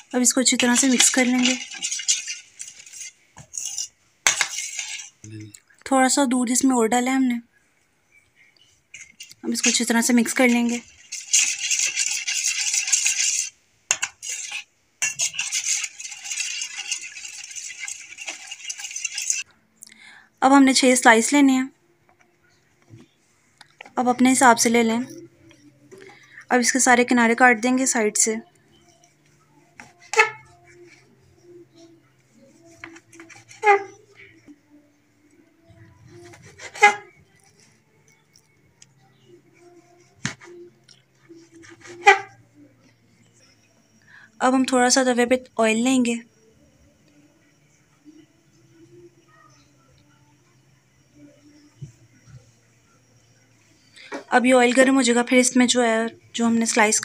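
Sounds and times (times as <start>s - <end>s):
spoon beating batter in metal bowl: 0.0s - 5.2s, 8.9s - 19.5s.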